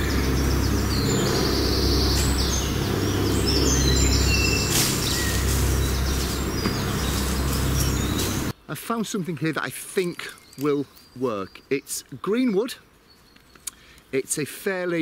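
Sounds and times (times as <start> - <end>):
small birds chirping and trilling: 0.0 - 8.5, 9.4 - 15.0
steady low rumble: 0.0 - 8.5.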